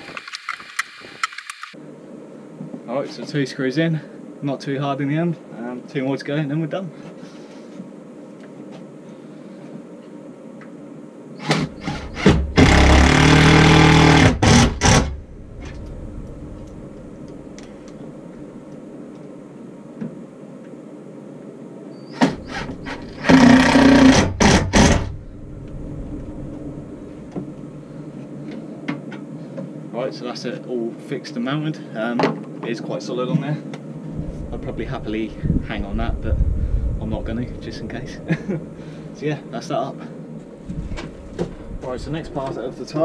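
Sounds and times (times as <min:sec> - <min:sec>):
cordless drill motor whine: 0:11.4 - 0:15.2, 0:22.2 - 0:25.2.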